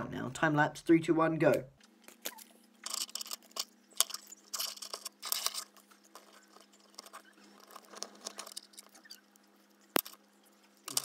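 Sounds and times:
small metal clicks: 2.1s - 10.2s, 10.8s - 11.0s
scraping and rustling: 2.1s - 11.0s.

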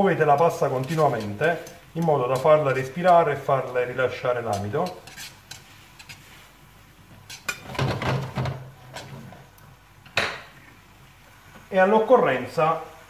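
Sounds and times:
metal tongs scraping frying pan: 0.0s - 6.5s, 7.2s - 9.3s.

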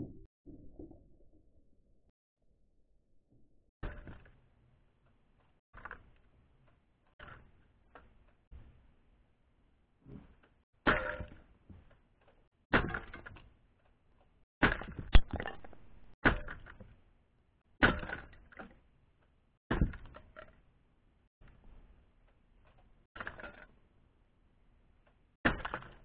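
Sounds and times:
clatter of plastic pieces: 22.7s - 23.8s.

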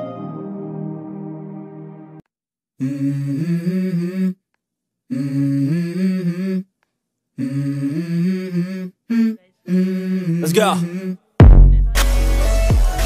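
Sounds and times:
person humming a melody: 2.8s - 4.4s, 5.1s - 6.7s, 7.4s - 11.2s.

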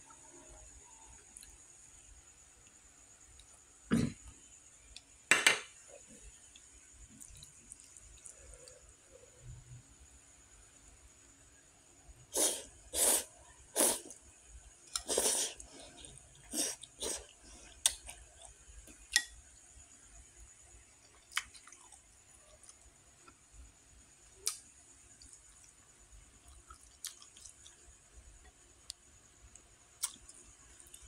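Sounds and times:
person slurping noodles: 12.4s - 14.2s, 15.0s - 17.4s.

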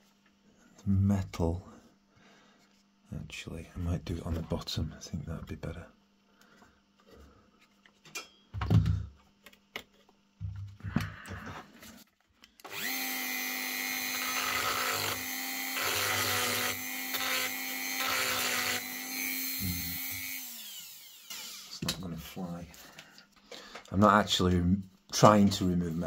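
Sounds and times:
rotary tool grinding metal: 12.7s - 21.8s.

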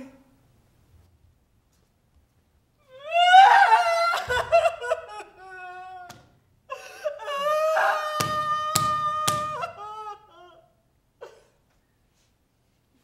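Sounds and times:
woman crying and wailing: 2.9s - 11.5s.

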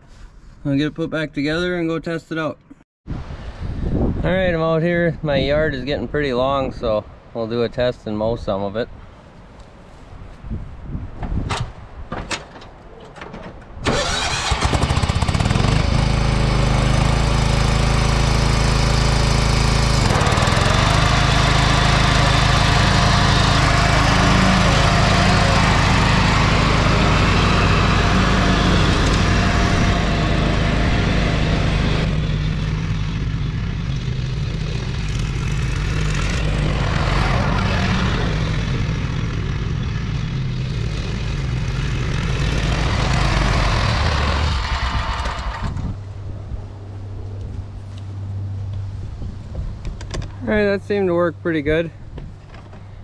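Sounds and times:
riding mower engine: 12.1s - 53.0s.

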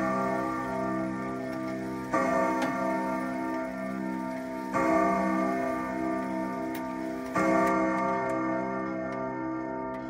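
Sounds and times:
clock chime ringing: 0.0s - 10.0s
clock ticking: 0.0s - 10.0s.

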